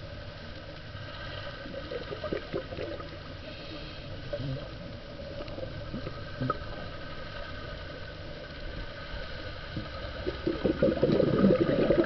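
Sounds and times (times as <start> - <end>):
muffled underwater hiss: 0.0 - 12.0
bubbles gurgling and crackling: 1.3 - 3.5, 4.2 - 8.9, 9.6 - 12.0.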